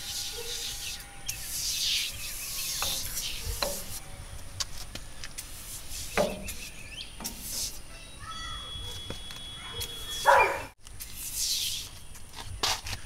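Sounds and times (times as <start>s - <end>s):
aerosol can spraying: 0.0s - 4.0s, 5.4s - 7.8s.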